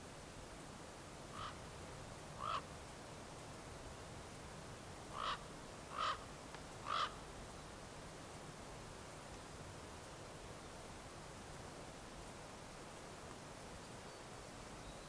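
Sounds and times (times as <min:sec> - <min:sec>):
short animal calls: 0:01.4 - 0:01.6, 0:02.4 - 0:02.6, 0:05.2 - 0:06.2, 0:06.8 - 0:07.2.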